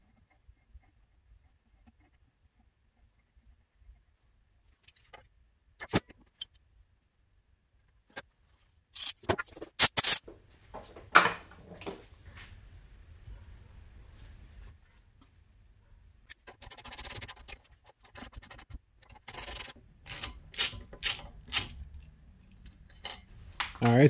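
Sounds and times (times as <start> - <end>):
hand tools clicking and knocking: 19.0 - 23.7.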